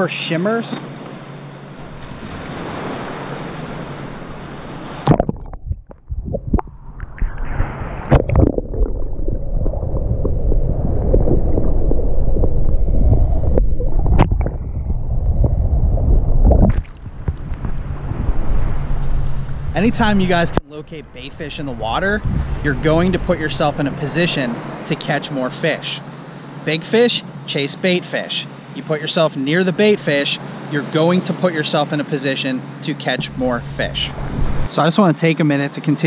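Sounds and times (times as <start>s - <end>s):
wind and water hiss: 0.0s - 36.0s
underwater rumbling and gurgling: 1.7s - 20.6s, 33.2s - 34.7s
splash: 5.0s - 5.7s, 16.4s - 17.8s
underwater clicks and knocks: 5.0s - 10.4s, 16.4s - 17.8s.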